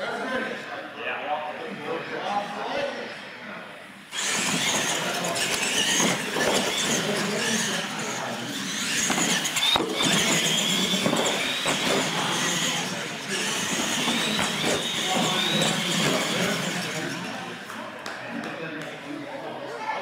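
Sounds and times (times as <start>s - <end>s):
toy truck motor whine: 4.1s - 17.7s
trucks clattering over ramps: 8.7s - 17.4s.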